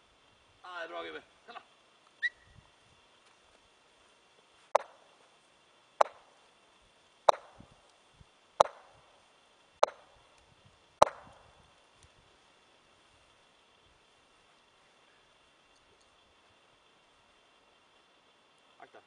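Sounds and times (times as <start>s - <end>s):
golf club striking balls: 7.3s - 7.7s, 8.6s - 9.0s, 11.0s - 11.4s.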